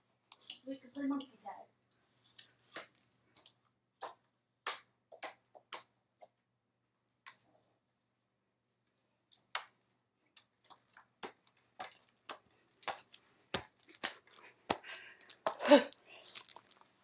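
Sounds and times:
rummaging clicks and rustles: 10.4s - 17.0s.

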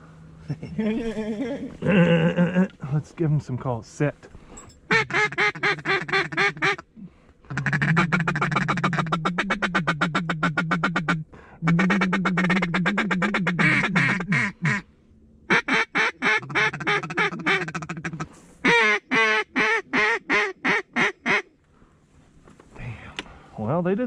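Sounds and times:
duck call quacking: 4.9s - 6.8s, 7.5s - 14.8s, 15.5s - 21.5s.

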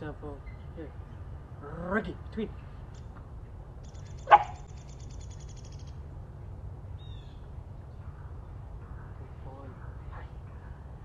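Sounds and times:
low background rumble: 0.0s - 11.0s
bird chirp: 0.4s - 1.4s, 3.8s - 6.0s, 6.9s - 10.8s
bird trilling: 3.9s - 6.0s.

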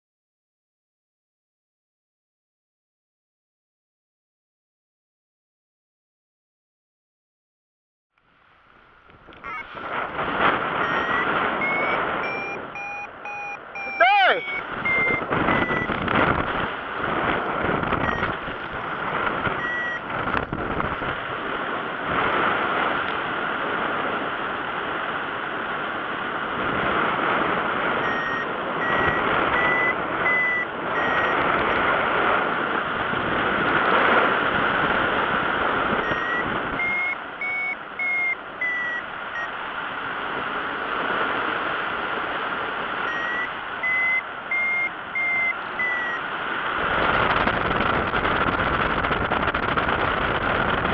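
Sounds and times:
variometer quick beeps rising in pitch: 10.8s - 16.0s, 18.0s - 18.4s, 19.5s - 20.1s, 28.0s - 31.4s, 36.0s - 39.5s, 43.1s - 46.2s
airflow rushing over microphone: 14.1s - 37.4s.

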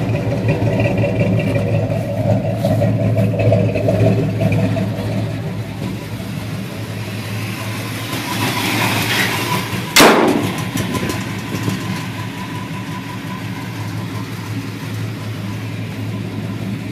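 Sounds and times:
engine idling: 0.0s - 16.9s
sharp bang: 10.0s - 11.0s.

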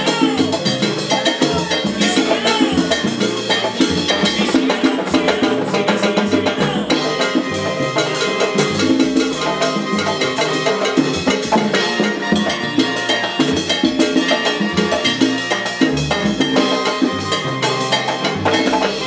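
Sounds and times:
busy percussion and drums: 0.0s - 19.0s
moving bass line: 0.0s - 19.0s
salsa band playing: 0.0s - 19.0s.

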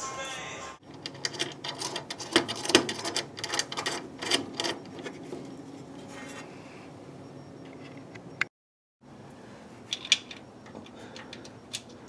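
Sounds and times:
nut and washer rattling on bolt: 0.9s - 5.1s.

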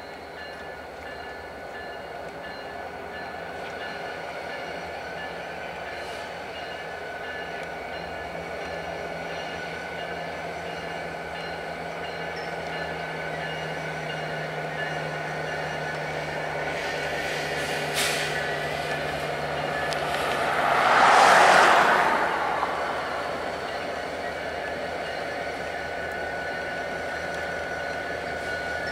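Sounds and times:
diesel locomotives running: 0.0s - 28.9s
road vehicle passing: 17.0s - 25.8s
hiss of air: 17.2s - 18.5s.

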